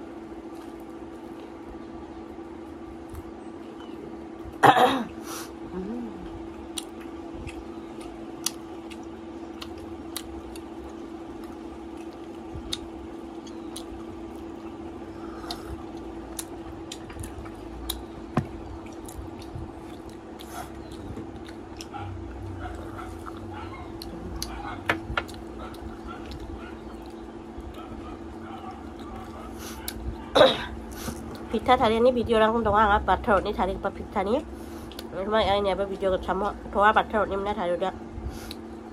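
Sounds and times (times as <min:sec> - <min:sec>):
steady hum: 0:00.0 - 0:38.9
chewing: 0:06.4 - 0:30.3.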